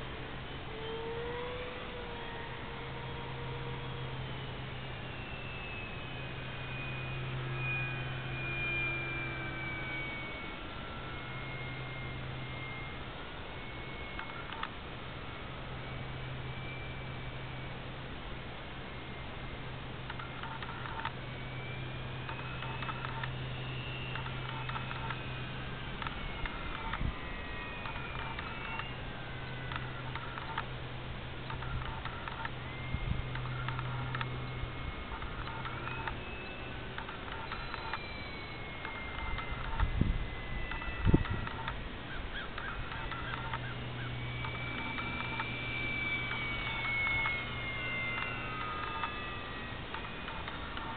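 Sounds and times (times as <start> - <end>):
model airplane motor whine: 0.0 - 50.9
steady low hum: 0.0 - 50.9
scattered clicks: 13.6 - 14.8, 20.0 - 30.8, 31.4 - 50.9.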